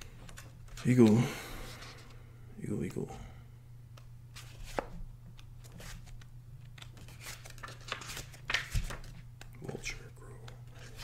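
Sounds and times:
faint steady hum: 0:00.0 - 0:11.0
paper pages rustling: 0:04.3 - 0:09.8, 0:10.4 - 0:11.0.

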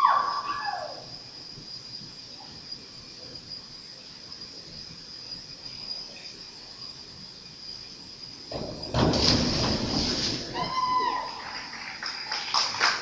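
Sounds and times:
steady high-pitched whine: 0:00.0 - 0:12.9.

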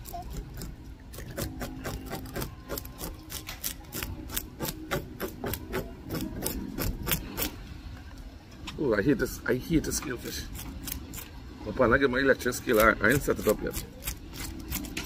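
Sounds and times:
knife scraping fish scales: 0:00.0 - 0:07.6, 0:10.2 - 0:11.4, 0:12.5 - 0:15.0.

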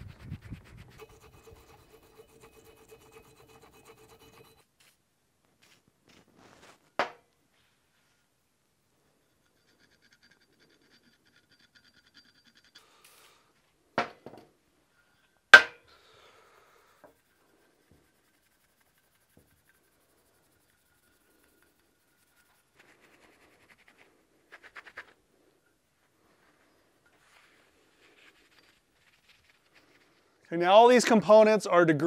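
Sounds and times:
metal pick scraping on metal: 0:00.0 - 0:04.7, 0:09.0 - 0:13.4, 0:14.9 - 0:23.0
rag rubbing: 0:00.0 - 0:04.7, 0:15.6 - 0:25.2.

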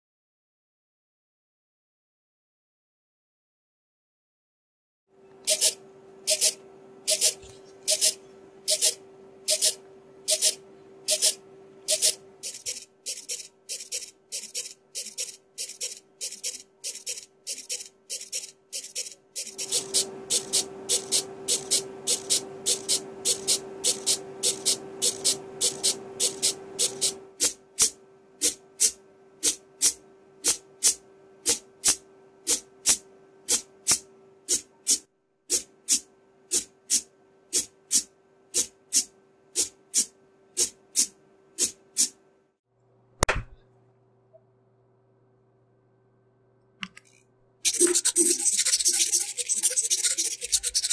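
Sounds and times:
thin servo whine: 0:05.4 - 0:27.2
servo arms clicking keyboard keys: 0:05.5 - 0:27.1.

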